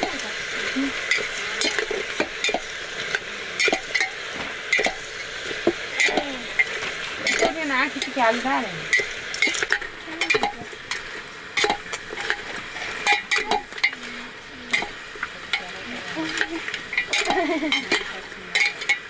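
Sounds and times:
curry sizzling: 0.0s - 19.0s
metal ladle clinking in pot: 11.6s - 12.4s, 13.0s - 14.0s.

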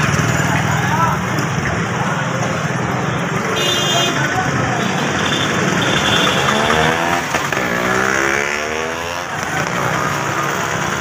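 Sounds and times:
background traffic: 0.0s - 11.0s
crowd noise: 0.0s - 11.0s
vehicle engine passing by: 6.4s - 11.0s.

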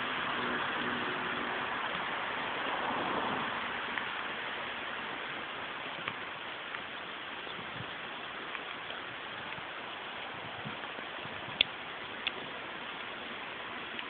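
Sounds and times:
faint clicks: 5.9s - 9.7s, 11.5s - 13.1s.

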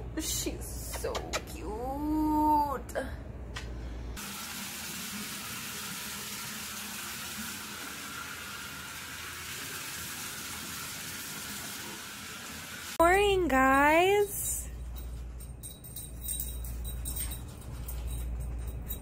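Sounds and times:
water running into bathtub: 4.2s - 13.0s.

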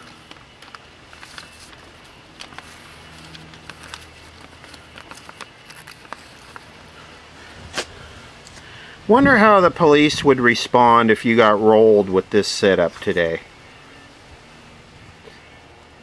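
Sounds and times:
paper rustling: 0.0s - 7.1s.

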